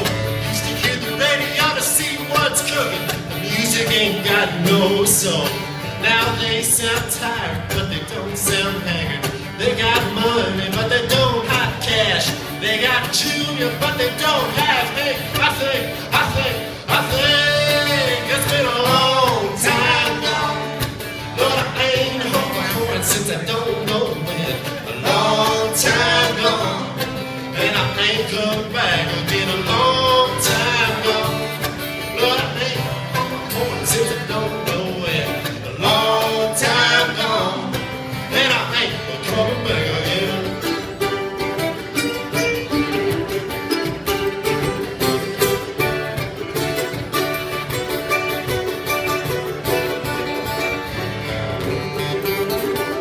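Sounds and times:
man singing: 0.0 - 41.3
picked mandolin: 0.0 - 53.0
strummed acoustic guitar: 0.0 - 53.0.

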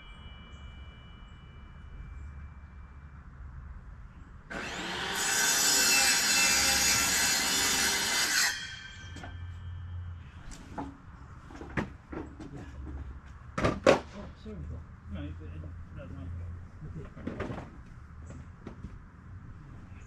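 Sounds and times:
power saw cutting wood: 4.5 - 9.5.

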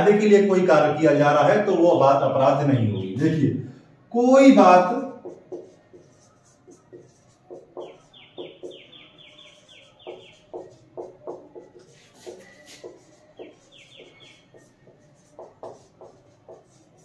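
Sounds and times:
bird chirping: 2.0 - 3.5, 5.6 - 16.8
marker scratching on whiteboard: 4.4 - 17.0.

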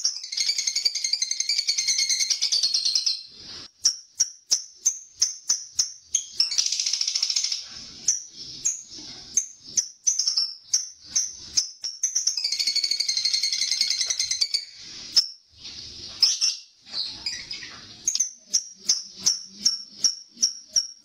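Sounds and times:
bird chirping: 0.0 - 21.0
bird chattering trill: 4.2 - 14.8.

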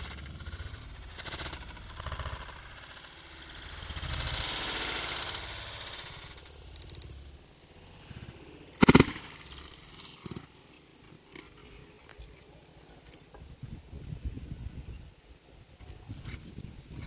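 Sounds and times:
coconuts thudding on ground: 8.8 - 10.4.

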